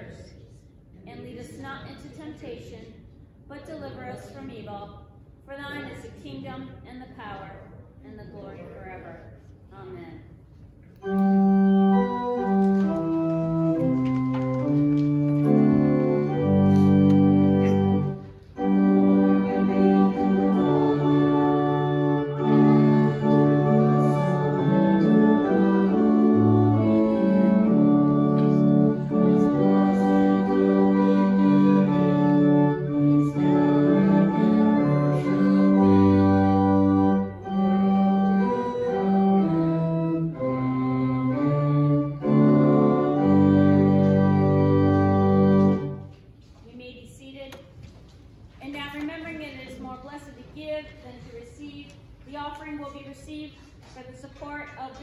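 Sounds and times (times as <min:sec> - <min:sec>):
church organ chords: 0:11.0 - 0:46.1.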